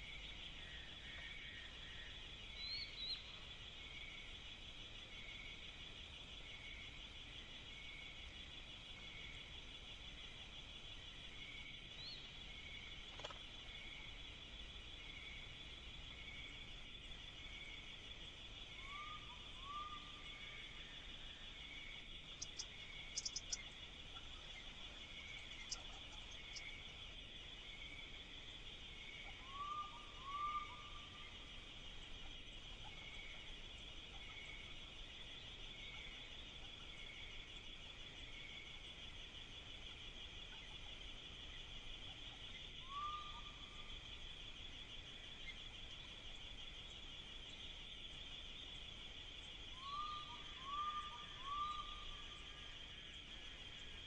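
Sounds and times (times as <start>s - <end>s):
insects trilling: 0.0s - 54.0s
cluster of clicks: 13.1s - 13.5s.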